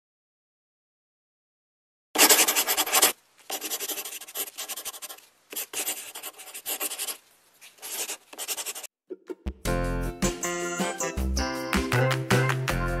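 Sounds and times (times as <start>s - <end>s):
marker rubbing across paper: 2.2s - 8.9s.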